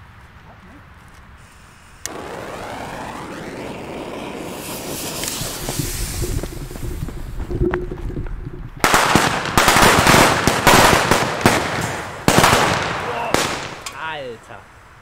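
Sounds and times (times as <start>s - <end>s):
firecracker fuse burning: 1.4s - 8.0s
firecrackers cracking and banging: 2.1s - 14.0s.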